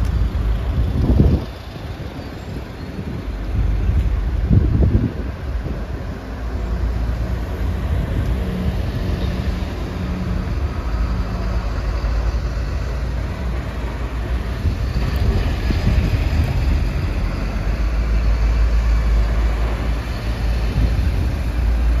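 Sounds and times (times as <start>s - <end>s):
heavy vehicles driving past: 0.0s - 22.0s.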